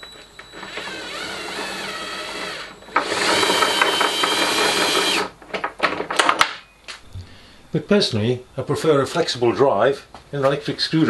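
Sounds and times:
electric screwdriver whirring: 0.6s - 5.3s.

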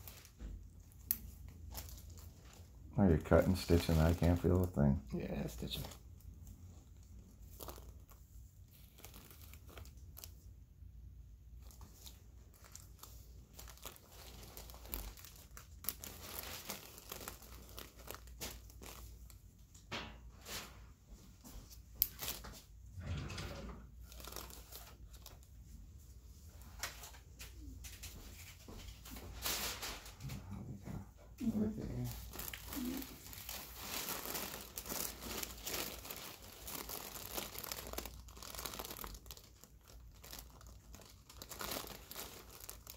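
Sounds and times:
gloved hands rustling: 5.5s - 10.6s, 11.4s - 22.9s, 32.1s - 42.9s
paper drape crinkling: 7.2s - 10.4s.

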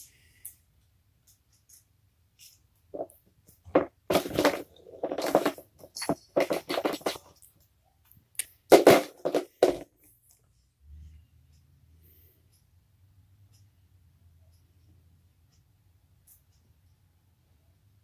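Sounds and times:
ball rattling in plastic track: 3.7s - 7.3s.

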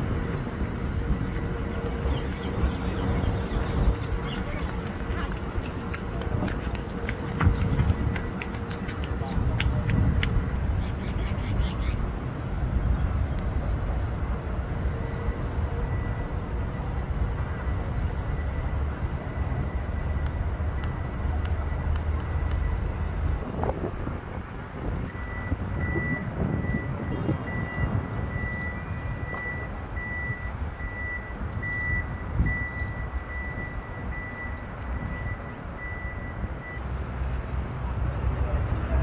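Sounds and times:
low rumble of vehicles: 0.0s - 39.0s
reversing alarm beeping: 15.0s - 23.1s, 24.8s - 36.8s.

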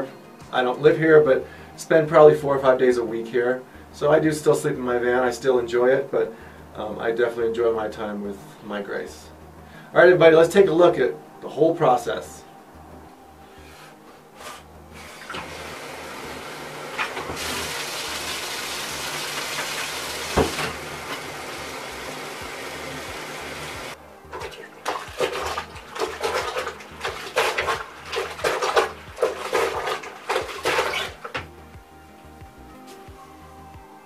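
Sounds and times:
faucet running into bucket: 15.0s - 31.5s
water splashing in bucket: 15.0s - 31.5s.

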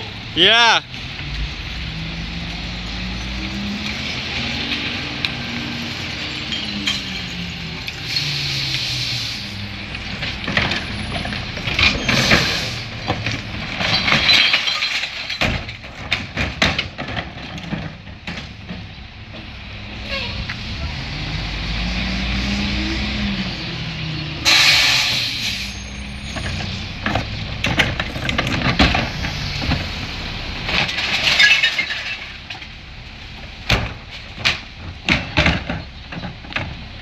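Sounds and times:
garbage truck diesel engine: 0.0s - 37.0s
glass recyclables crashing: 6.4s - 7.7s, 13.8s - 15.8s, 30.8s - 32.4s.

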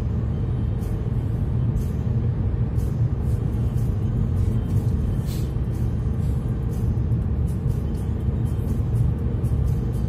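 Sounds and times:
road and engine rumble: 0.0s - 10.0s.

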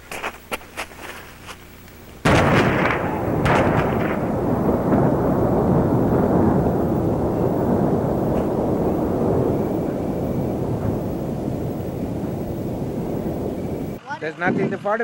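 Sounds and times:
sharp pops: 2.2s - 5.5s, 8.2s - 14.0s
large explosion rumbling: 2.2s - 14.6s.

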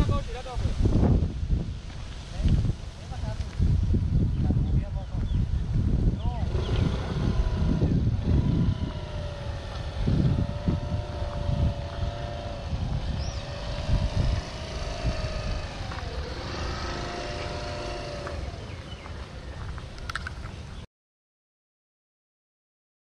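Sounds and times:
wind buffeting microphone: 0.0s - 20.8s
motor engine running: 4.9s - 20.6s.

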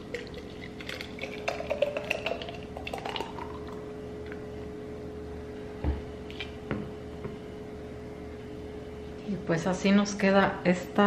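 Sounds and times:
drink pouring into jar: 0.0s - 3.8s.

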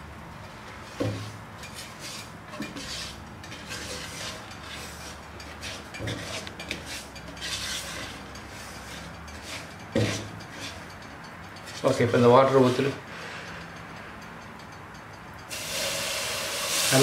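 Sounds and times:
spatula scraping sugar in pot: 0.6s - 14.0s
spatula knocking pot: 5.4s - 12.0s.

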